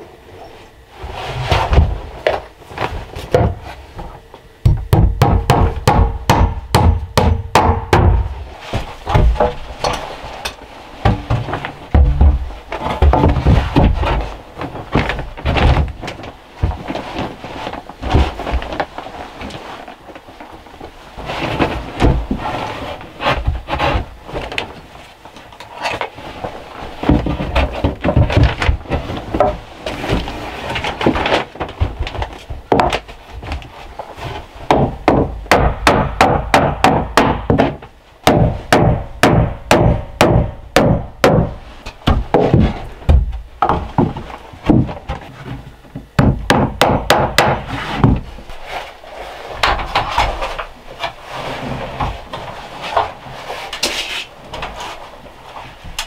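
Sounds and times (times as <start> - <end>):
boards scraping: 0.0 - 4.4, 8.1 - 35.1, 41.5 - 46.2, 47.4 - 56.0
wooden boards knocking: 3.3 - 3.7, 4.6 - 9.6, 11.0 - 16.9, 34.7 - 48.3.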